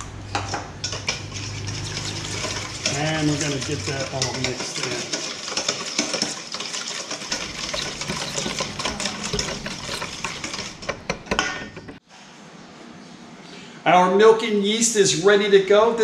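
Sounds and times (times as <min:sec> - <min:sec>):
utensil beating in a bowl: 0:07.3 - 0:11.4.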